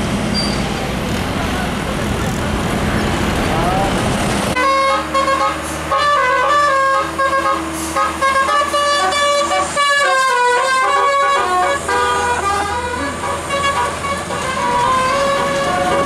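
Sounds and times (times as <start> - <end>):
musical air horn melody: 4.6 - 16.0.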